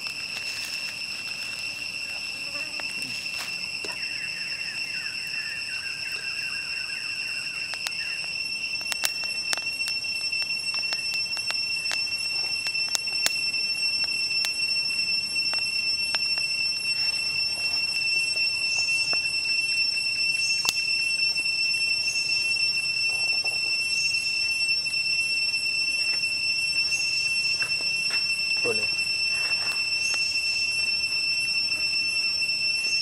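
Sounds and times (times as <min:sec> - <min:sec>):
charcoal crackling and popping: 0:00.0 - 0:06.4, 0:07.1 - 0:21.4
insects droning: 0:00.0 - 0:33.0.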